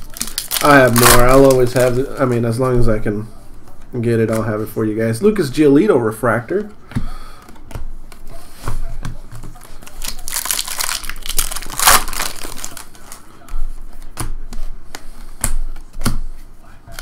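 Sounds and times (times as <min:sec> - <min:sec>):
wrapper crinkling: 0:00.0 - 0:02.6, 0:09.6 - 0:13.2.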